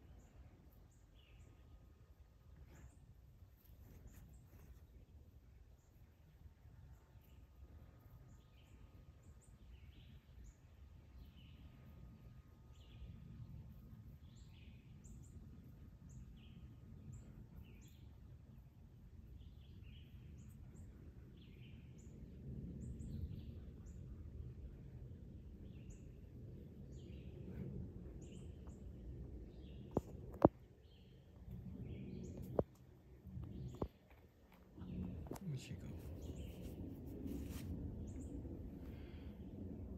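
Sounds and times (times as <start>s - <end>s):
small birds chirping: 0.0s - 1.9s, 12.6s - 24.1s, 24.7s - 39.4s
low outdoor rumble: 0.0s - 39.9s.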